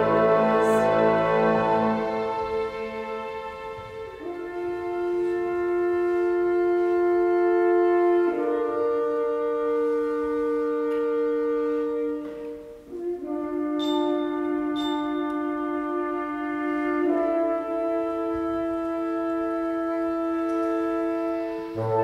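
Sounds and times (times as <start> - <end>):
orchestral brass and wind chords: 0.0 - 22.0.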